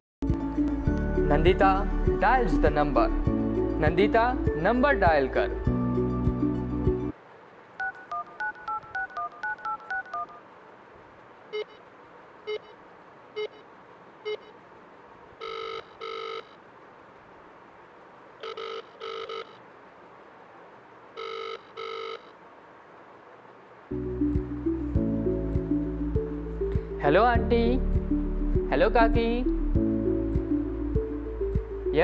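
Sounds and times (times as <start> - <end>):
keypad dialing beeps: 7.8 - 10.4, 11.5 - 11.8, 12.5 - 12.8, 13.4 - 13.6, 14.3 - 14.5, 15.4 - 16.6, 18.4 - 19.6, 21.2 - 22.3
short telephone beeps: 11.5 - 11.8, 15.4 - 16.6, 18.4 - 19.6, 21.2 - 22.3
telephone double ring: 15.4 - 16.6, 18.4 - 19.6, 21.2 - 22.4.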